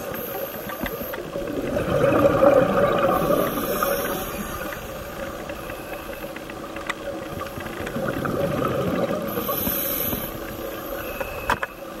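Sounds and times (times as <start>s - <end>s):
underwater rushing water hiss: 0.0s - 6.2s, 7.4s - 11.2s
faint steady hum: 0.0s - 12.0s
scuba exhaled bubbles: 1.2s - 5.6s, 7.2s - 10.6s.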